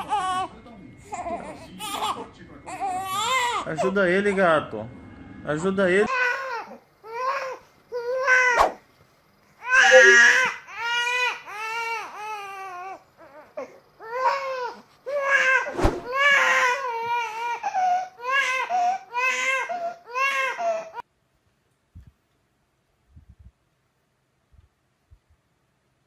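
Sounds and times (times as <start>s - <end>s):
infant crying: 0.0s - 0.5s, 1.1s - 3.9s, 6.1s - 8.6s, 9.6s - 21.0s.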